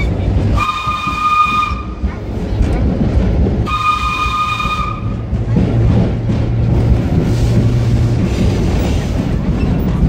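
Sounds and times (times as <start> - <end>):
subway train rumbling: 0.0 - 10.0
train whistle: 0.5 - 2.0, 3.6 - 5.2.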